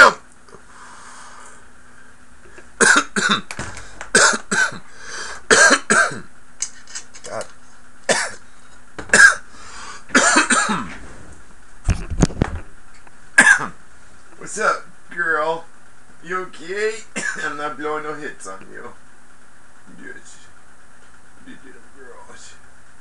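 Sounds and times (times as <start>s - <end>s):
man coughing harshly: 0.0s - 0.2s, 2.8s - 3.5s, 4.1s - 4.9s, 5.5s - 6.3s, 8.1s - 8.4s, 9.1s - 9.5s, 10.1s - 11.0s, 13.4s - 13.8s, 17.2s - 17.6s.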